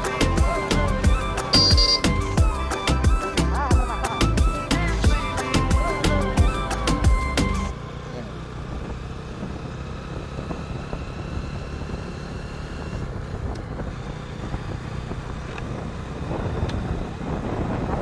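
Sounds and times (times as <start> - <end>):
motorcycle engine rumble: 0.0 - 18.0
wind noise on microphone: 12.8 - 18.0.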